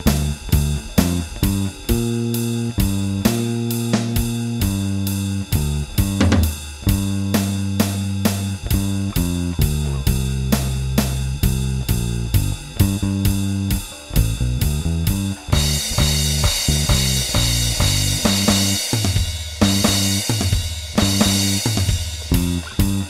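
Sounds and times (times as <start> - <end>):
drum track steady beat: 0.0 - 23.0
electric bass blues line: 0.0 - 23.0
cymbal crash: 15.5 - 23.0.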